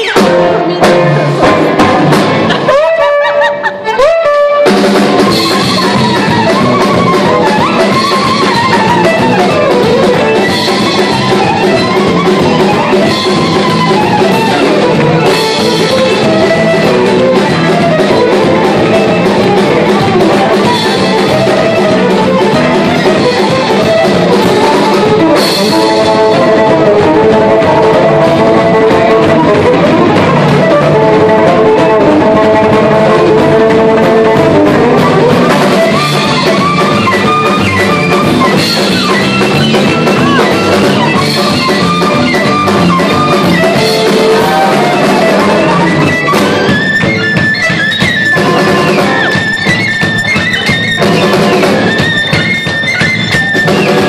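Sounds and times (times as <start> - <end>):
live band playing loudly: 0.0 - 54.0.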